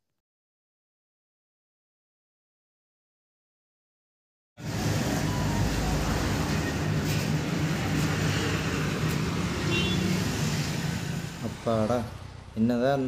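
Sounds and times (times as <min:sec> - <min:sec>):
street traffic rumble: 0:04.6 - 0:13.0.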